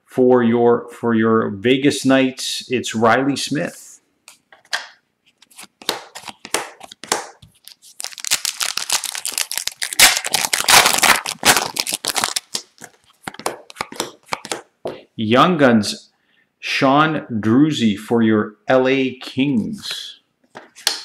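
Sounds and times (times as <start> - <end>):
foil wrapper tearing and crinkling: 5.4 - 14.4.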